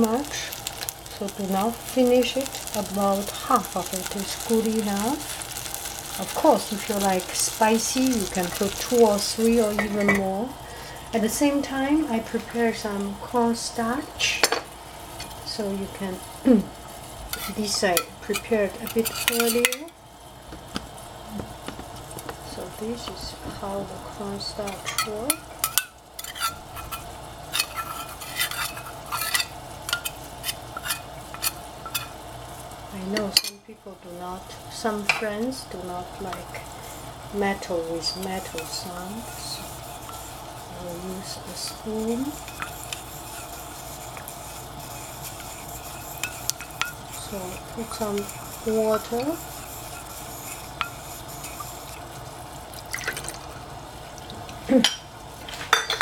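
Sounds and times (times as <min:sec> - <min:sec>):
steady hiss: 0:00.0 - 0:56.0
liquid stirring: 0:24.8 - 0:32.1, 0:38.1 - 0:54.6.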